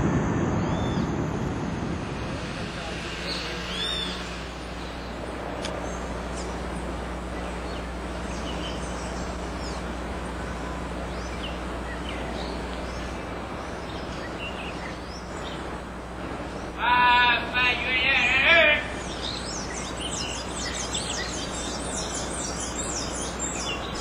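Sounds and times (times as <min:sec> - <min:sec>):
low hum: 0:00.0 - 0:24.0
small birds chirping: 0:02.0 - 0:24.0.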